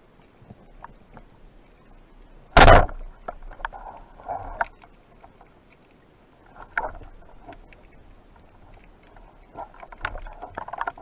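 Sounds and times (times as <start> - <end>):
rushes of water noise: 0.0 - 11.0
underwater clicks and knocks: 2.6 - 5.5, 6.6 - 11.0.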